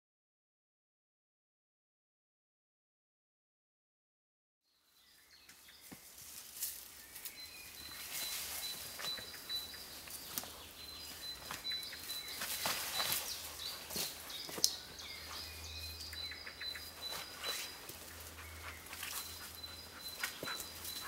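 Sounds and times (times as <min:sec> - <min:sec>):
birds chirping: 0:04.7 - 0:21.0
twigs and bark crackling: 0:05.4 - 0:21.0.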